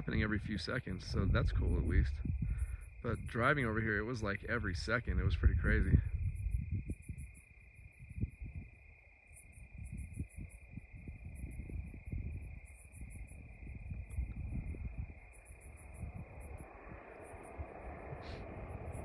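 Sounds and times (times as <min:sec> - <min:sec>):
low rumbling: 0:00.0 - 0:07.0, 0:11.0 - 0:19.0
crickets chirping: 0:00.0 - 0:19.0.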